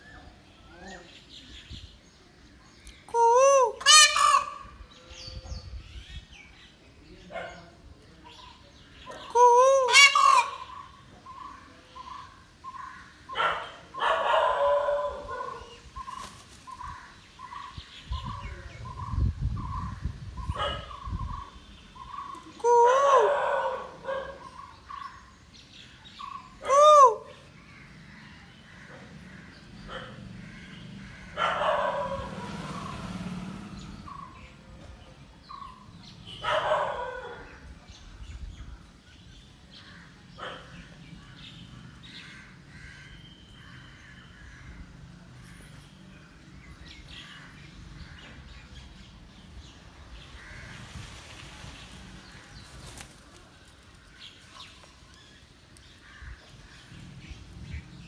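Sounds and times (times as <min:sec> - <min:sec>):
peacock calling: 0:03.0 - 0:05.4, 0:08.5 - 0:25.4, 0:26.2 - 0:34.6.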